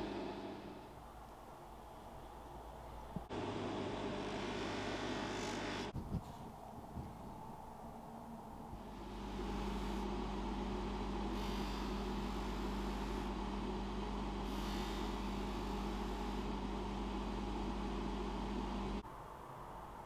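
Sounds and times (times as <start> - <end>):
polishing motor running: 0.0 - 0.8, 3.3 - 5.9.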